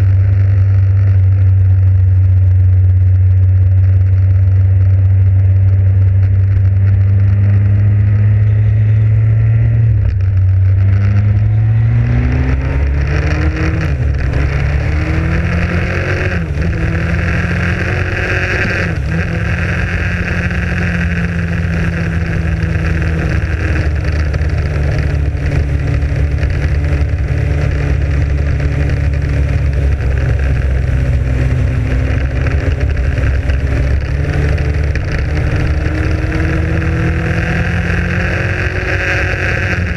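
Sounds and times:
motorcycle engine accelerating: 0:00.0 - 0:39.9
wind rushing over microphone: 0:09.5 - 0:39.9.

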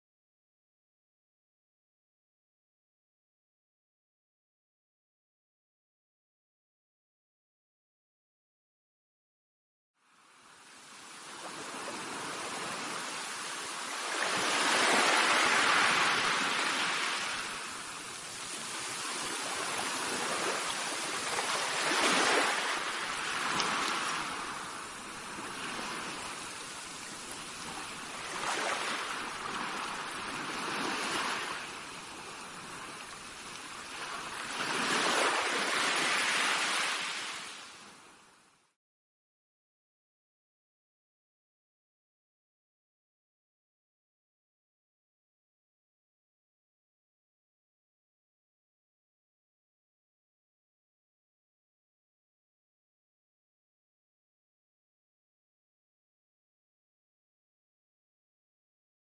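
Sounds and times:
waves breaking on shore: 0:10.0 - 0:38.6.

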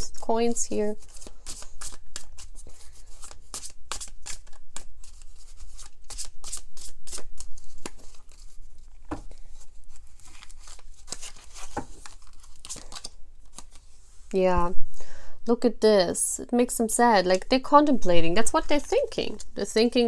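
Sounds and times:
cards being shuffled by hand: 0:00.8 - 0:14.1.

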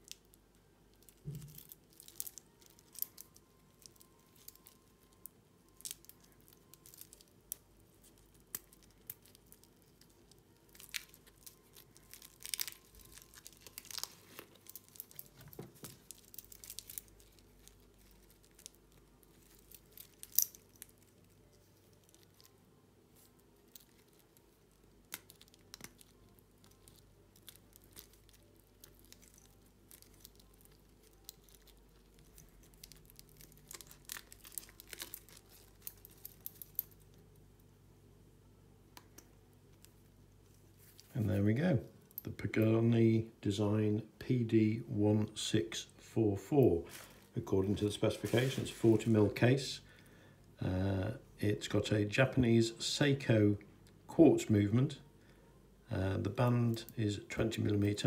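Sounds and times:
plastic film crinkling and tearing: 0:00.0 - 0:37.3, 0:46.9 - 0:49.5.

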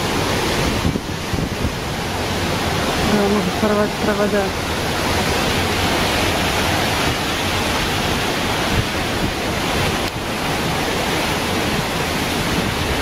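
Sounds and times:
driving rain: 0:00.0 - 0:13.0
gusting wind through trees: 0:00.0 - 0:13.0
wind buffeting microphone: 0:00.0 - 0:13.0.

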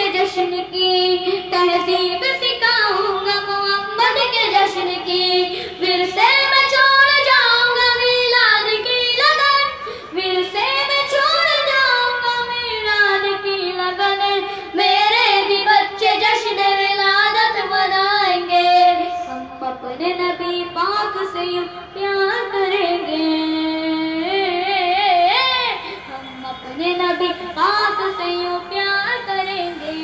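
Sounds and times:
boy singing devotional song: 0:00.0 - 0:30.0
singer breaths: 0:05.5 - 0:05.8, 0:09.7 - 0:10.2, 0:14.4 - 0:14.8, 0:25.8 - 0:26.2.

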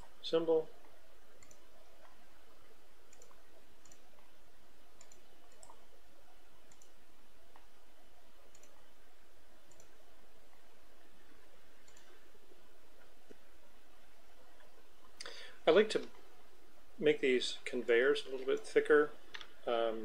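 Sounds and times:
steady low hum: 0:00.0 - 0:20.0
computer mouse clicks: 0:00.8 - 0:02.2, 0:03.1 - 0:04.4, 0:05.0 - 0:05.8, 0:06.6 - 0:07.7, 0:08.5 - 0:08.9, 0:09.7 - 0:10.6, 0:11.8 - 0:12.2.

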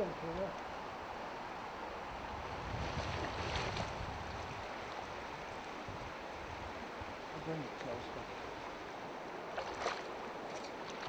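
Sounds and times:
river running over stones: 0:03.3 - 0:11.0.

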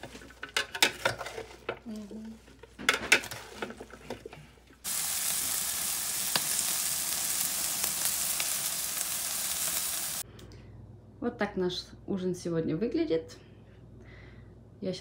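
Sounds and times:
meat sizzling on a grill: 0:04.8 - 0:10.2.

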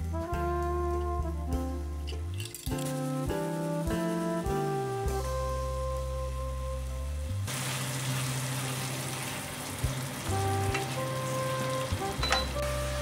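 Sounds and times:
background music: 0:00.0 - 0:13.0
meat and onions sizzling in a pan: 0:07.0 - 0:13.0.

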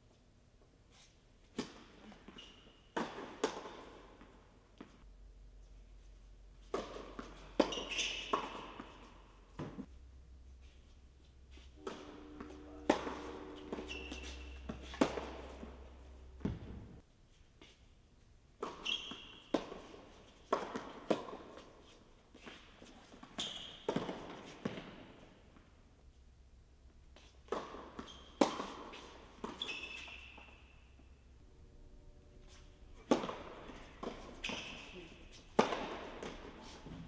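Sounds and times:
court shoes squeaking: 0:00.9 - 0:05.0, 0:05.6 - 0:17.0, 0:18.6 - 0:26.2, 0:27.1 - 0:31.4, 0:32.3 - 0:37.0
tennis balls bouncing on hard court: 0:01.5 - 0:05.0, 0:06.6 - 0:09.9, 0:11.5 - 0:17.0, 0:18.6 - 0:25.2, 0:27.2 - 0:31.0, 0:32.5 - 0:37.0
tennis balls struck by racquets: 0:02.9 - 0:05.0, 0:06.6 - 0:09.9, 0:11.8 - 0:17.0, 0:18.6 - 0:25.2, 0:27.2 - 0:30.8, 0:32.5 - 0:37.0.

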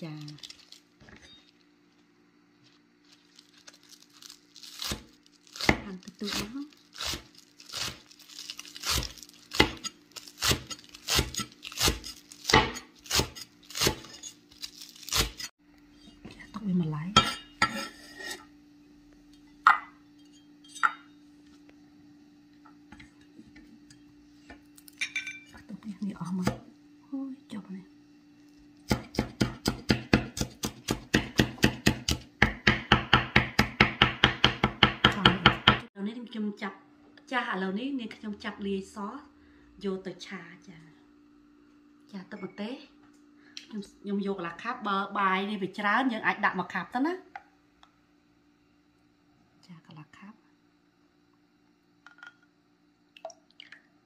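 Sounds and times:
cleaver chopping onions on wood: 0:08.9 - 0:14.2, 0:28.9 - 0:35.8.

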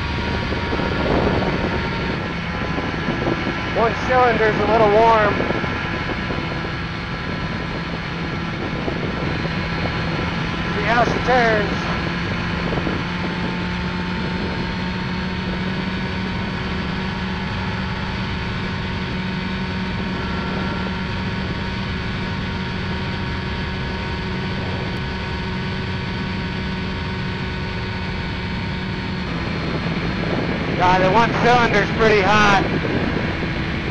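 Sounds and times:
light airplane engine drone: 0:00.0 - 0:33.9.

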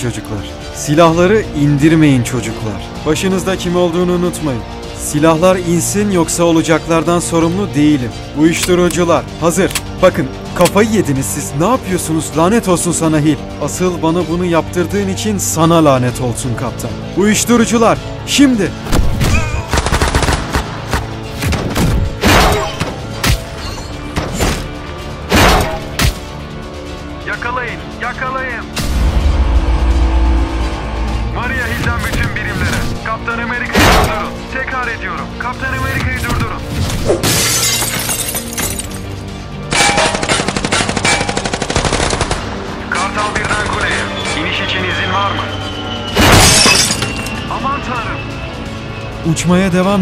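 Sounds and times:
dramatic background music: 0:00.0 - 0:50.0
gunshots: 0:18.9 - 0:23.4, 0:39.7 - 0:42.5
automatic gunfire: 0:19.7 - 0:20.7, 0:40.0 - 0:42.4
glass shattering: 0:37.1 - 0:39.1, 0:46.2 - 0:47.4.

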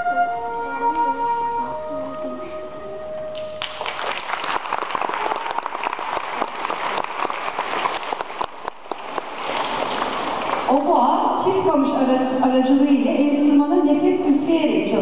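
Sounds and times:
orchestra holding a note: 0:00.0 - 0:03.8
audience applause: 0:03.4 - 0:10.8.

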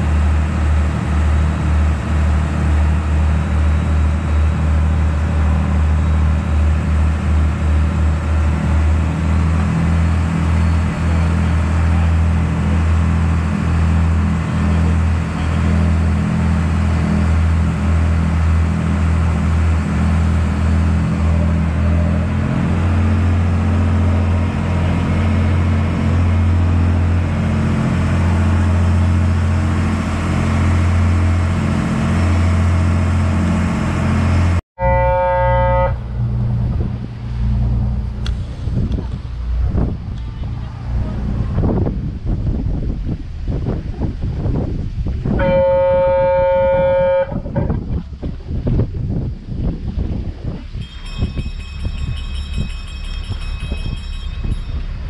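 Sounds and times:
wake rushing behind boat: 0:00.0 - 0:34.6
boat engine droning: 0:00.0 - 0:55.0.

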